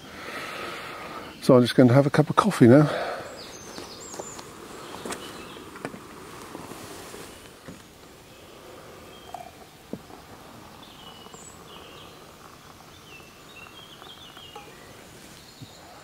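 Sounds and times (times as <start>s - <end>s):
birds singing faintly: 0.0s - 16.0s.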